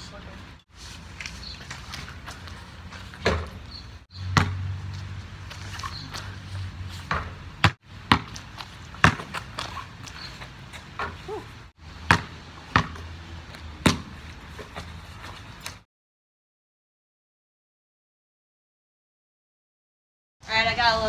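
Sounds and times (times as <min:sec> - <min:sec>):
basketball bouncing on pavement: 0:01.6 - 0:15.5
basketball hitting backboard and rim: 0:03.2 - 0:04.9, 0:07.0 - 0:09.8, 0:11.9 - 0:13.1, 0:13.8 - 0:14.7.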